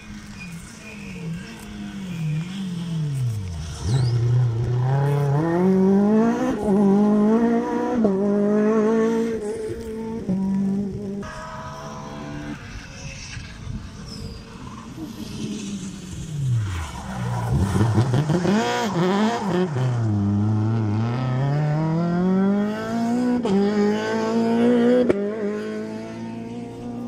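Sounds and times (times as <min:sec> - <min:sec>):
rally car engine passing: 0:00.2 - 0:27.0.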